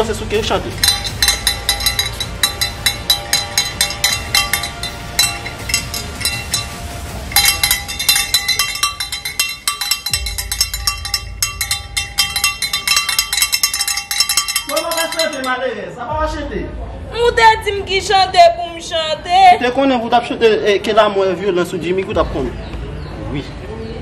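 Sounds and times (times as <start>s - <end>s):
hand bell ringing: 0.8s - 15.6s.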